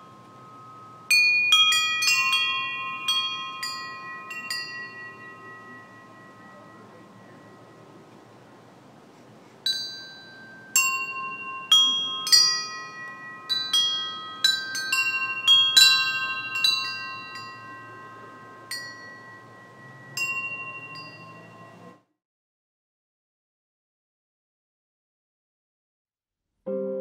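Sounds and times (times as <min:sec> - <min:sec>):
metal chimes ringing: 0:00.0 - 0:08.9, 0:09.6 - 0:22.0.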